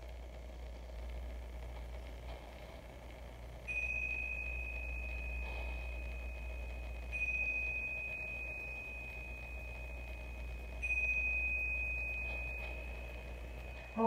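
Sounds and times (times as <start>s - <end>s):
low steady hum: 0.0s - 14.0s
hand chime ringing: 3.6s - 14.0s.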